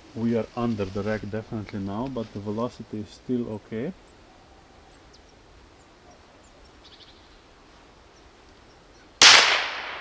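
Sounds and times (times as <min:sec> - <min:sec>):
faint outdoor background noise: 0:00.0 - 0:10.0
faint bird chirps: 0:04.0 - 0:09.2.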